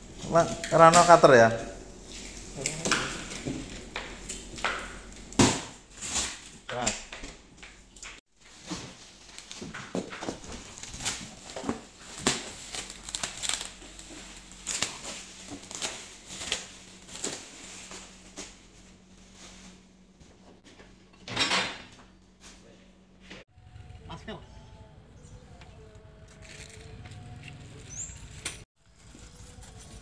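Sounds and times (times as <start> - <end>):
cardboard packaging handled: 8.4 - 18.6
plastic wrapping crinkling: 8.4 - 19.5.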